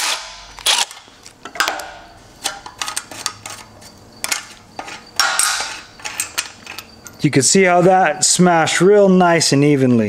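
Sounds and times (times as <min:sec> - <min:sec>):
metal tools clattering: 0:01.4 - 0:07.9.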